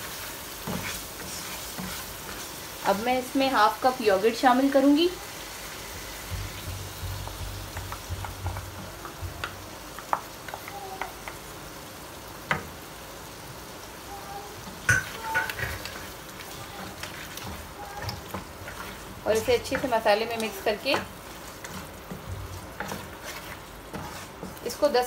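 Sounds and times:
meat frying in oil sizzling: 0.0s - 25.0s
wooden spoon knocking against pan: 6.3s - 11.4s.

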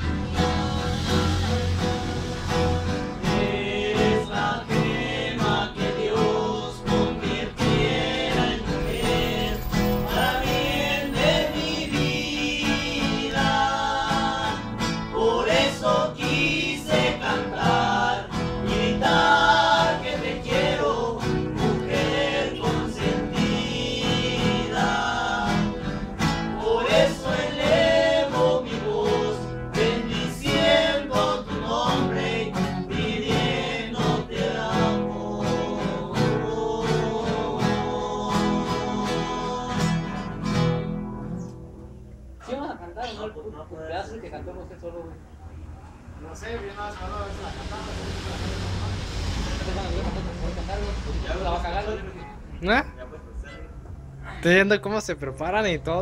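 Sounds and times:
acoustic guitars strummed: 0.0s - 42.5s
men singing together: 0.2s - 40.4s.

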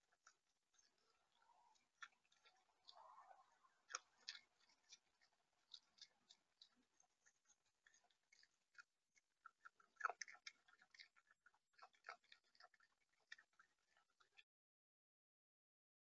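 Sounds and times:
bird pecking at seed: 0.0s - 14.4s.

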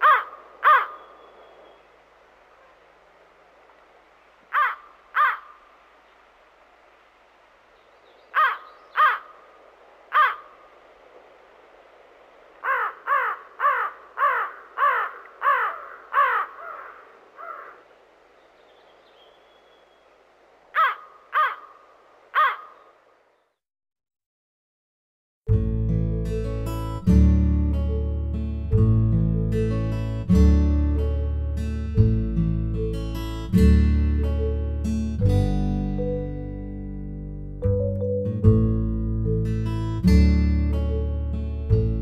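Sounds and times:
crow cawing: 0.0s - 1.2s, 4.5s - 5.7s, 8.3s - 10.7s, 12.6s - 17.9s, 20.7s - 23.1s.

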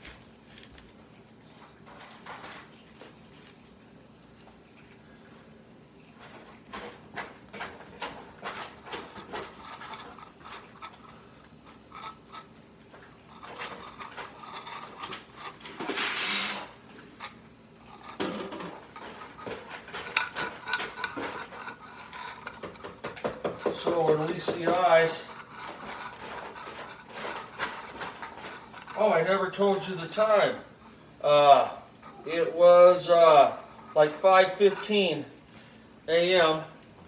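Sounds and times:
bowls clinking and scraping on tiles: 6.1s - 30.6s, 32.0s - 35.5s.

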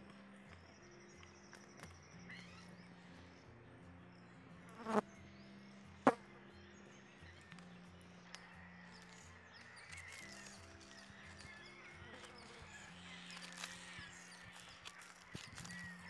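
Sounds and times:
soft background music: 0.0s - 16.0s
faint insect buzzing: 4.7s - 5.1s
burning charcoal crackling: 8.9s - 16.0s.

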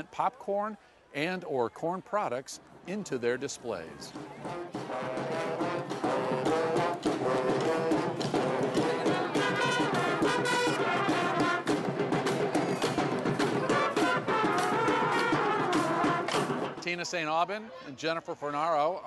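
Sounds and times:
marching drums beat: 4.1s - 16.8s
brass horns playing a tune: 4.4s - 11.9s, 13.5s - 16.7s.

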